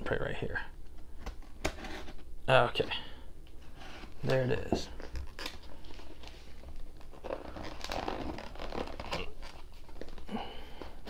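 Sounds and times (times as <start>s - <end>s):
cardboard and tape tearing: 5.0s - 10.2s.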